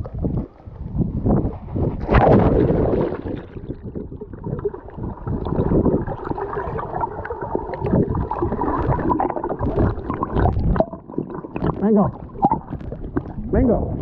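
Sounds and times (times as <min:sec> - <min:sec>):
underwater gurgling and sloshing: 0:00.0 - 0:14.0
small underwater clicks: 0:07.7 - 0:13.4.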